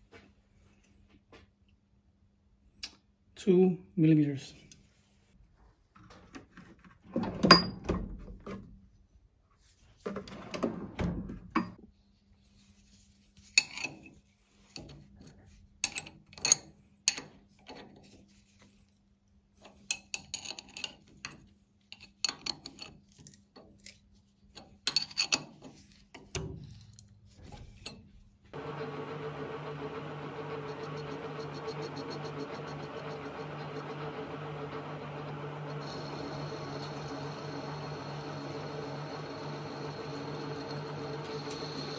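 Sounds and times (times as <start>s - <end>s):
lathe motor humming: 28.6s - 41.9s.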